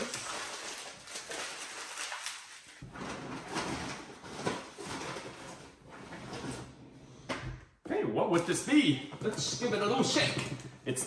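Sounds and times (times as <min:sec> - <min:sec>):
wrapping paper crumpling: 0:00.0 - 0:02.9.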